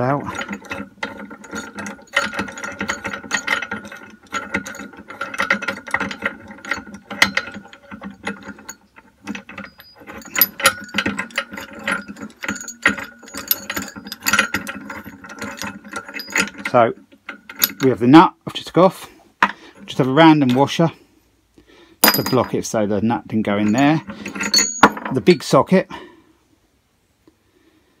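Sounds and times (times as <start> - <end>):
metal parts clicking and clinking: 0.0 - 18.2, 22.0 - 25.6.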